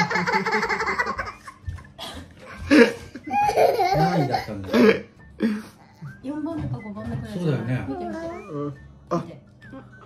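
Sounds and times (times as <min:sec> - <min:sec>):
girl laughing: 0:00.0 - 0:04.5
man laughing: 0:02.7 - 0:05.0.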